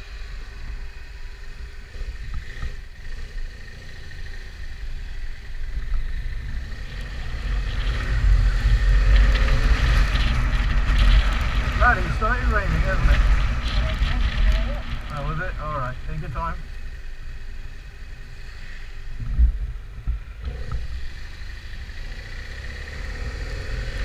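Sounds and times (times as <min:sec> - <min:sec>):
motorcycle engine: 0:00.0 - 0:24.0
wind rush: 0:06.4 - 0:15.8.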